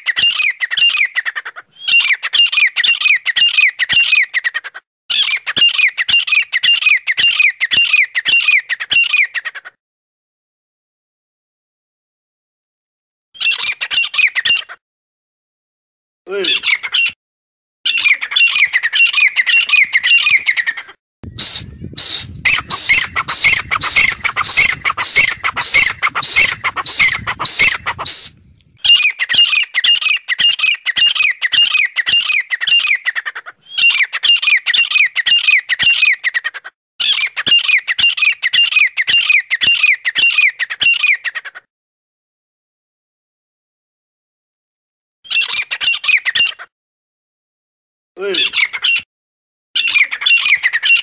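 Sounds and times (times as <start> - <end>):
francolin calling: 21.3 - 28.3.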